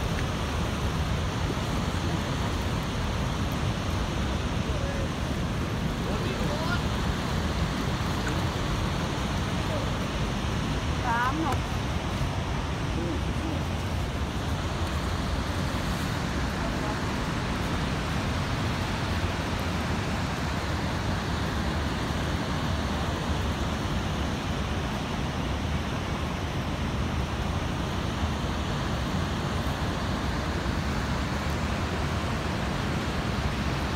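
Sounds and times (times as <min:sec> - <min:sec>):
churning river: 0:00.0 - 0:33.9
roar of rushing waterfall: 0:00.0 - 0:33.9.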